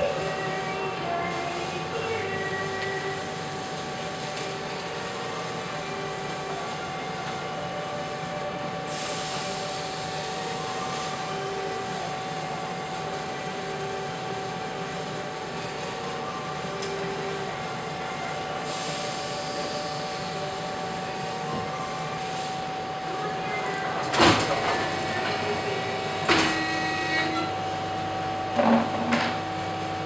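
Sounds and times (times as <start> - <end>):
workshop machinery humming: 0.0 - 30.0
hiss: 8.9 - 11.1, 18.6 - 20.1.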